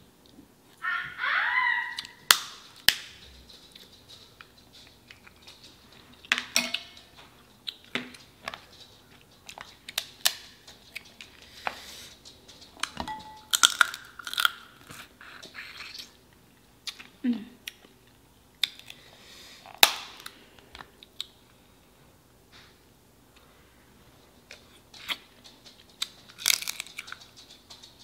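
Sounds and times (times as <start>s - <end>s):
crab shells snapping and cracking: 2.3s - 3.1s, 13.5s - 15.0s, 19.8s - 20.3s, 26.0s - 27.2s
close-up chewing: 6.9s - 16.2s, 24.5s - 28.0s.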